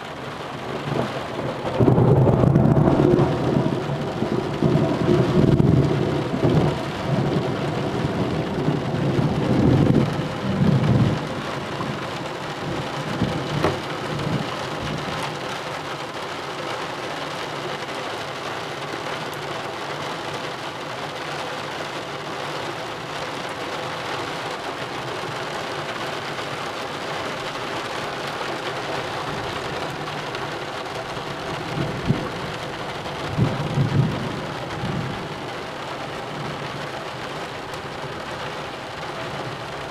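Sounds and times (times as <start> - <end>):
steady rain falling: 0.0 - 39.9
thunder rumbling: 0.6 - 15.2, 29.2 - 35.5.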